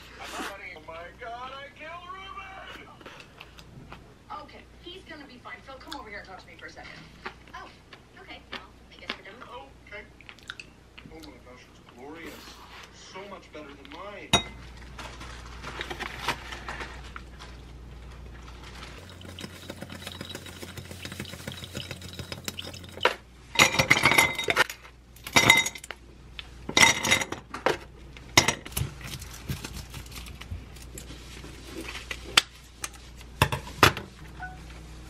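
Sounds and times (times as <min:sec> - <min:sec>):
chopsticks stirring in glass: 0:19.0 - 0:24.6
ice cubes clinking against glass: 0:19.0 - 0:24.6.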